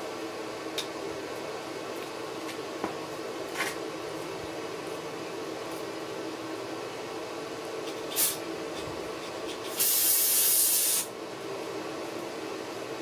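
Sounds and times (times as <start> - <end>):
aerosol spray hissing: 9.7 - 11.1.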